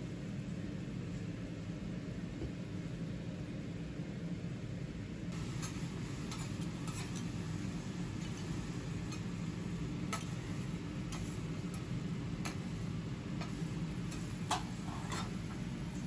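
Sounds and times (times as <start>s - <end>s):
food ticking and popping on griddle: 5.4s - 16.0s.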